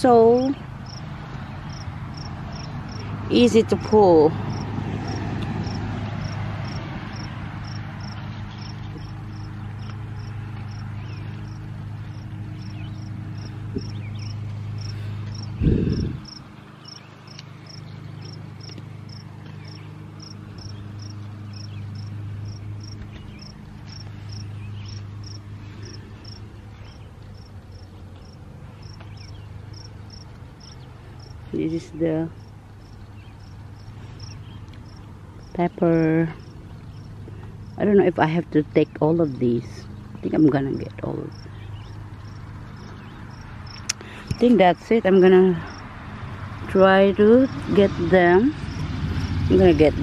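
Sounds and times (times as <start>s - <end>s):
cricket chirping: 0.8s - 1.1s, 1.7s - 3.0s, 4.5s - 10.8s, 11.4s - 26.4s, 27.4s - 31.4s, 32.4s - 35.5s, 41.3s - 43.9s.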